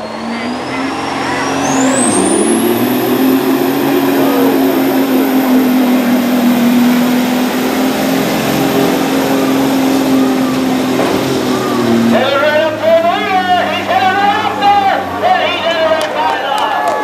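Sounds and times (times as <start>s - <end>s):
high whistle: 0.0s - 5.9s
diesel truck engine roaring: 0.0s - 17.0s.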